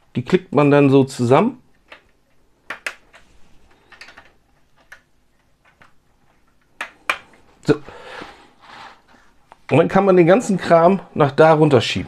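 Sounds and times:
plastic bricks clicking together: 1.7 - 7.4.

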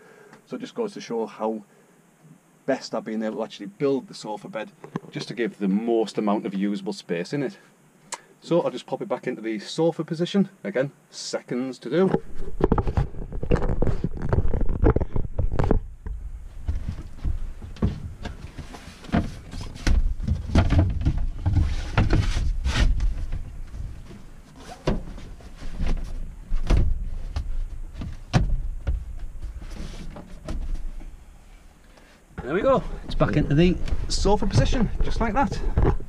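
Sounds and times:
furniture knocks and bumps: 16.6 - 31.0, 32.4 - 36.0
cushions rubbing and sliding: 21.3 - 28.3.

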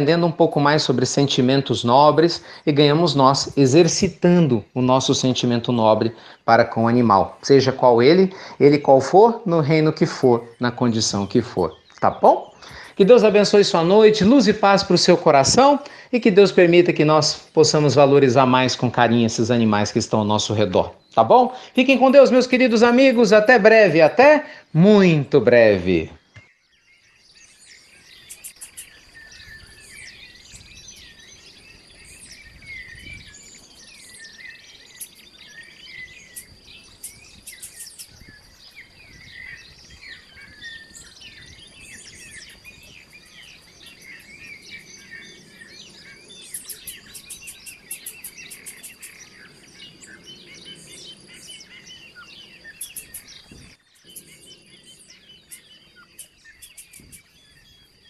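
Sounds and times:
birds chirping and warbling: 0.0 - 58.0
insect rattling trills: 27.4 - 58.0
high-pitched insect drone: 28.2 - 30.0, 36.2 - 38.6, 42.0 - 49.4, 54.0 - 57.3.

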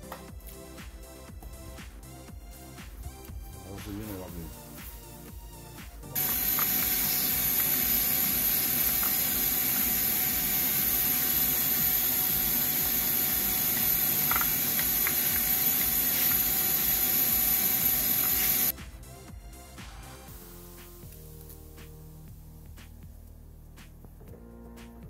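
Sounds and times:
vacuum cleaner running: 6.2 - 18.7.

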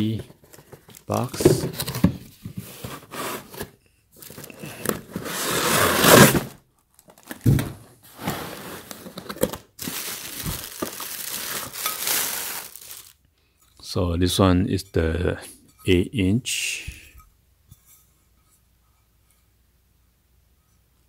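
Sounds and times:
plastic bag crinkling: 6.3 - 7.5, 8.6 - 13.2.

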